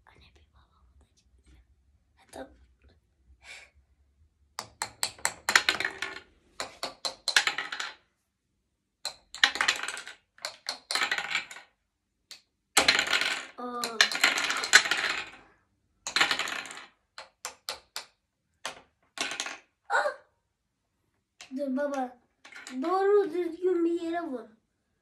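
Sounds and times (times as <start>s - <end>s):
toy hammers tapping plastic: 4.6s - 5.8s, 6.6s - 7.5s, 10.4s - 11.0s, 17.2s - 18.8s
plastic blocks clattering: 5.0s - 8.0s, 9.1s - 11.7s, 12.8s - 19.6s.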